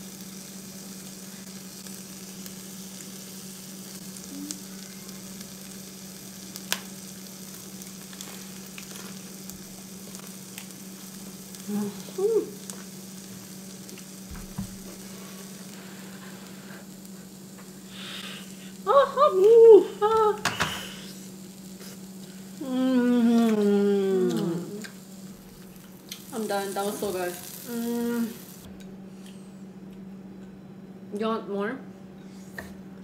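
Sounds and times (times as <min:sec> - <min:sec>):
beef sizzling on grill: 0:00.0 - 0:28.7
constant low hum: 0:00.0 - 0:33.0
person humming while eating: 0:04.2 - 0:05.2, 0:11.6 - 0:12.7, 0:17.9 - 0:21.2, 0:21.8 - 0:25.0, 0:27.6 - 0:28.5.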